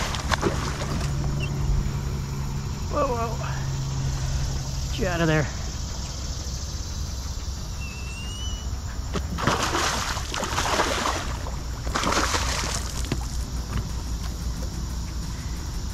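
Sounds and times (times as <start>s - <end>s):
water sloshing and splashing: 0.0s - 1.9s, 9.0s - 14.8s.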